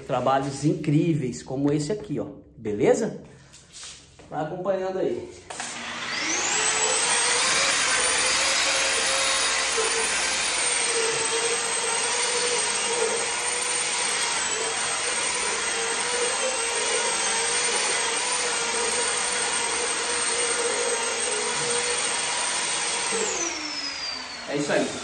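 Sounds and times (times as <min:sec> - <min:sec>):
polishing machine whining: 0:05.5 - 0:25.0.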